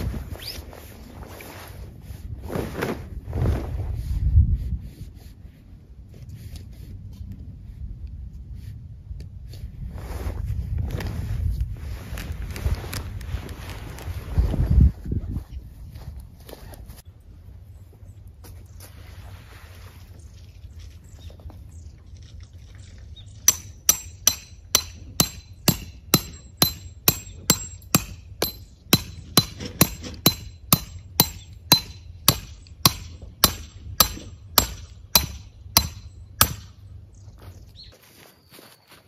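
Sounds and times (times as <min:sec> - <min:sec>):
hammer striking metal stake: 0:23.5 - 0:36.9.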